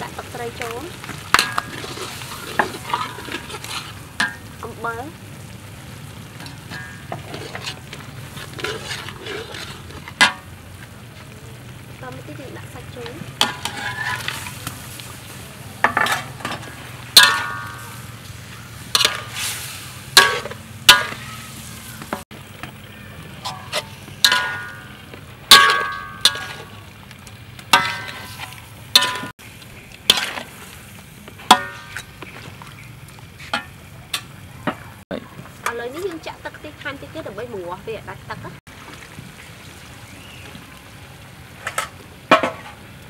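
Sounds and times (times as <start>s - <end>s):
frying sizzle: 0.0s - 43.0s
spatula clanging on wok: 1.3s - 3.6s, 4.2s - 4.5s, 6.4s - 7.8s, 13.4s - 14.5s, 15.8s - 18.0s, 18.9s - 19.4s, 20.1s - 21.3s, 23.4s - 26.7s, 27.7s - 29.3s, 31.4s - 32.1s.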